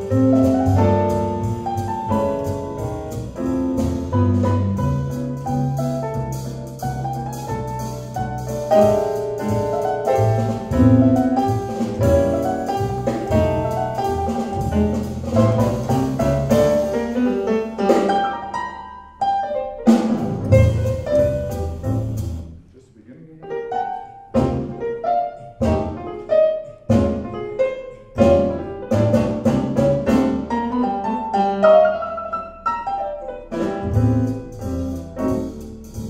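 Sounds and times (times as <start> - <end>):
low bass notes: 0.0 - 18.2, 19.9 - 23.1, 33.5 - 36.0
drums: 0.0 - 18.8, 19.8 - 22.7, 24.4 - 24.9, 25.6 - 30.8, 33.5 - 36.0
jazz piano: 0.0 - 36.0.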